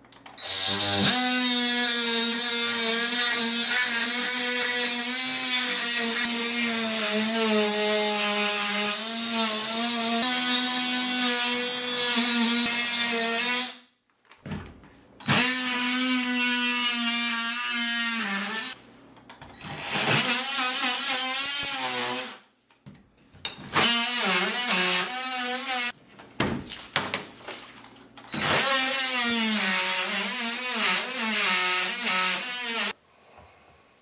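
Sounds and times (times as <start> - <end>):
oscillating multi-tool cutting drywall: 0.2 - 13.9, 15.2 - 18.8, 19.5 - 22.5, 23.6 - 26.0, 28.3 - 33.0.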